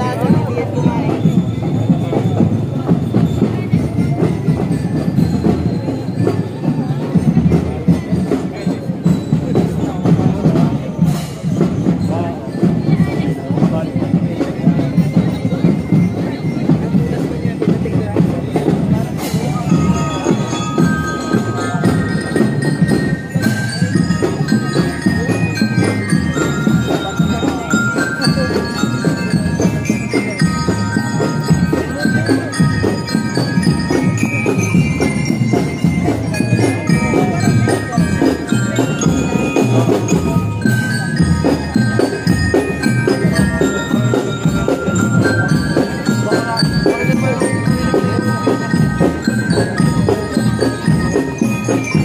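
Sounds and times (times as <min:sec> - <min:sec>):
bell lyres playing melody: 0:00.0 - 0:52.0
marching drums: 0:00.0 - 0:52.0.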